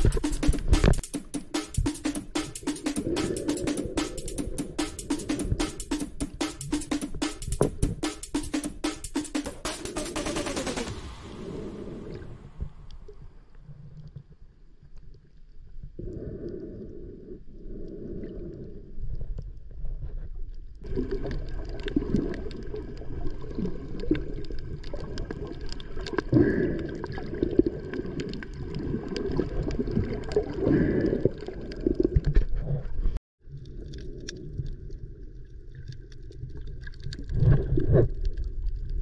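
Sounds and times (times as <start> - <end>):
underwater rumbling and sloshing: 11.0 - 39.0.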